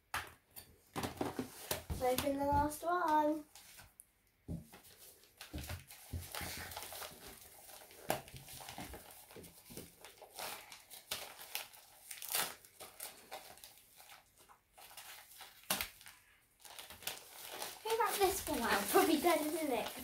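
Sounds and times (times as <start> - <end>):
wrapping paper crinkling and tearing: 4.7 - 20.0.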